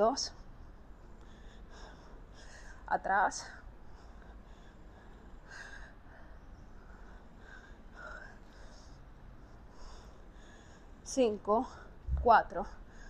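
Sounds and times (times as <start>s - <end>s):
woman breathing heavily: 0.4s - 13.0s.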